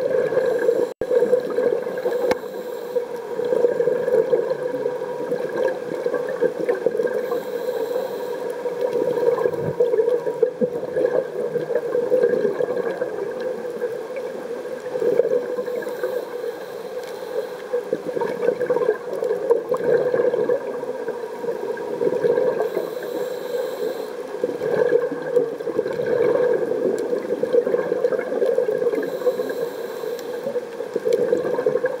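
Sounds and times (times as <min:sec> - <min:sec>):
underwater regulator bubbling: 0:00.0 - 0:13.9, 0:14.9 - 0:20.8, 0:21.8 - 0:32.0
faint high hiss: 0:00.3 - 0:03.6, 0:07.2 - 0:09.8, 0:15.5 - 0:18.3, 0:22.5 - 0:24.7, 0:28.9 - 0:31.6.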